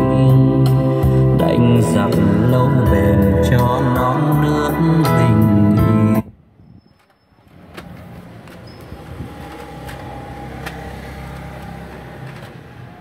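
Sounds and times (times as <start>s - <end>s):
music through speakers: 0.0s - 6.2s.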